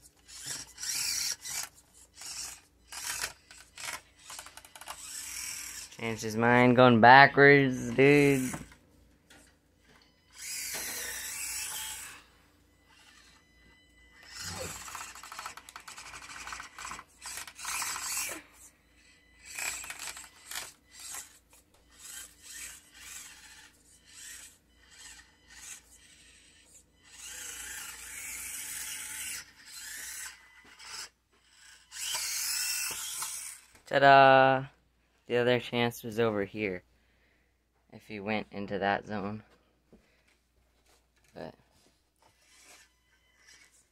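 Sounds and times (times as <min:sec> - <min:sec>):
toy truck motor whirring: 0:00.0 - 0:06.4, 0:07.7 - 0:33.9, 0:42.2 - 0:43.9.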